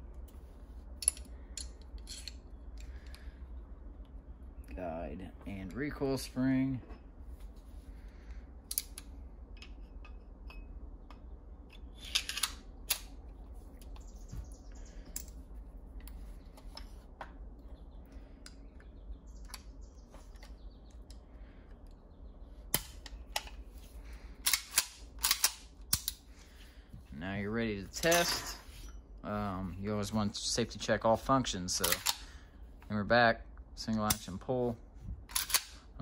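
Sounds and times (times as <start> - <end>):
low hum: 0.0 - 36.0
metallic clicks of pistol parts: 1.0 - 3.3, 8.7 - 14.1, 24.4 - 26.3, 31.7 - 32.4, 35.3 - 35.9.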